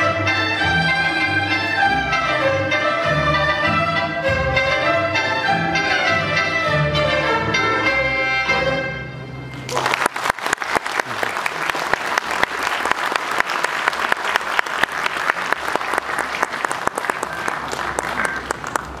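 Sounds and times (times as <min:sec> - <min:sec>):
audience applauding: 0:09.5 - 0:19.0.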